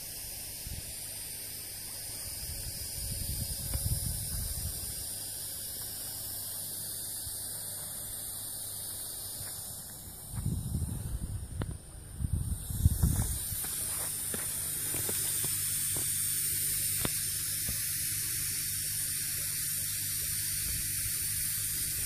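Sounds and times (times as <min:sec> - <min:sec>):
air hissing through tubing: 0:00.0 - 0:22.0.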